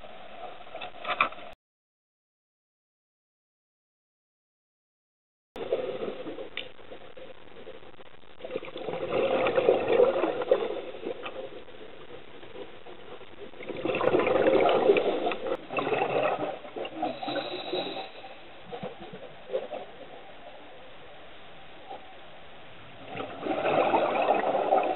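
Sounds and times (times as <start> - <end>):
diver's bubbles gurgling: 5.6 - 20.2, 23.0 - 24.9
steady underwater hiss: 5.6 - 24.9.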